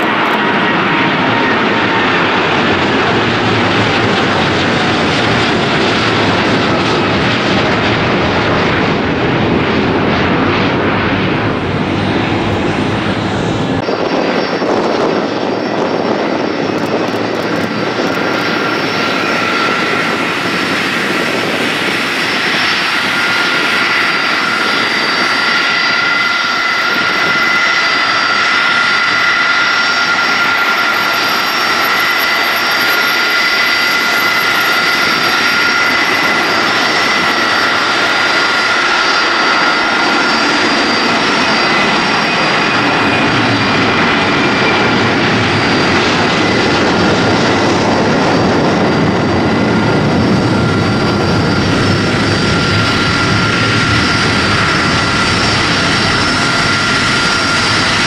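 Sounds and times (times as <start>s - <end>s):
jet airliner rumble: 0.0s - 58.0s
jet engines whining: 0.0s - 58.0s.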